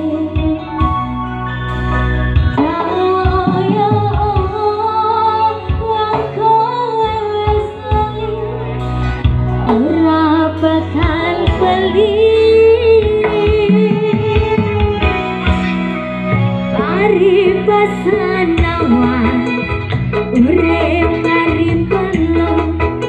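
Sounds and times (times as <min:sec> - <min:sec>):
woman singing through pa: 0:00.0 - 0:01.0, 0:02.6 - 0:08.8, 0:09.6 - 0:15.2, 0:16.7 - 0:23.0
electric guitar: 0:00.0 - 0:23.0
keyboard: 0:00.0 - 0:23.0.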